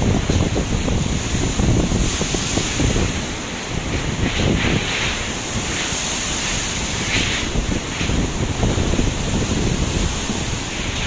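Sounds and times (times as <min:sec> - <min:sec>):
heavy surf breaking: 0:00.0 - 0:11.0
wind buffeting microphone: 0:00.0 - 0:11.0
hissing spray surges: 0:00.9 - 0:11.0.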